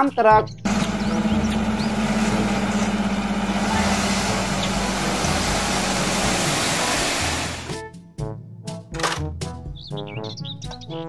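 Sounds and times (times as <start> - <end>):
diesel engine running: 0.7 - 7.8
hydraulic hoist hum: 0.7 - 7.8
soil load sliding out: 0.7 - 7.8.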